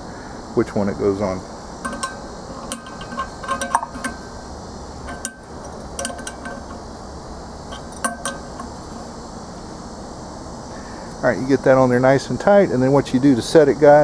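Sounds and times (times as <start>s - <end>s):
wrench clinking on metal: 1.8s - 4.4s, 5.0s - 6.9s, 7.6s - 9.2s.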